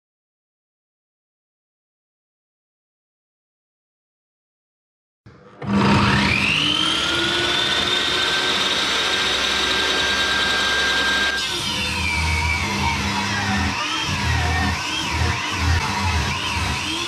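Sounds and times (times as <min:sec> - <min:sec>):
table saw motor whine: 0:05.5 - 0:17.0
saw blade cutting wood: 0:05.6 - 0:17.0.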